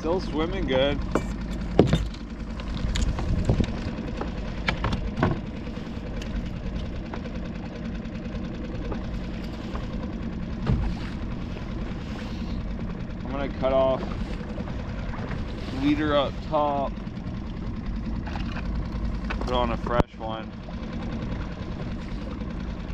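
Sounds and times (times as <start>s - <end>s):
outboard motor running: 0.0s - 22.9s
sharp knocks and clicks: 1.0s - 5.5s, 10.6s - 11.0s, 18.2s - 20.1s.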